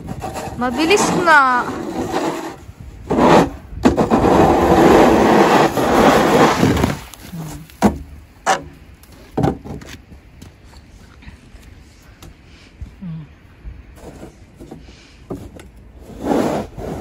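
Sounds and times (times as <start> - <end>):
snow shovel scraping asphalt: 0.1 - 7.7, 14.0 - 15.1, 16.0 - 17.0.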